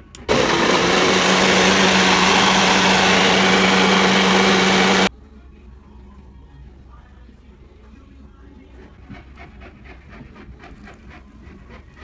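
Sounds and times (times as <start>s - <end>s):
blender motor running: 0.3s - 5.1s.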